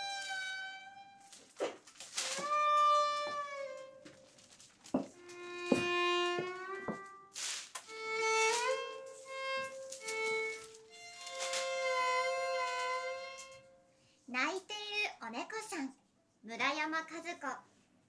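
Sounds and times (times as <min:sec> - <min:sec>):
violin playing sliding notes: 0:00.0 - 0:13.9
newspaper rustling: 0:01.2 - 0:03.5, 0:04.1 - 0:13.1.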